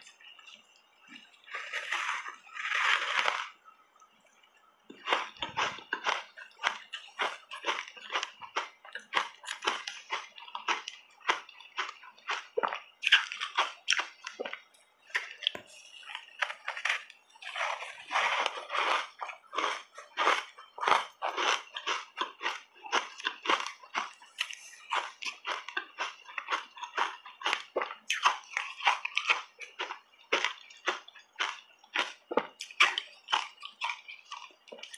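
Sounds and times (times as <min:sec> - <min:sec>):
chewing and biting crunches: 0:01.1 - 0:03.6, 0:04.9 - 0:34.9
wet mouth clicks: 0:27.8 - 0:29.0.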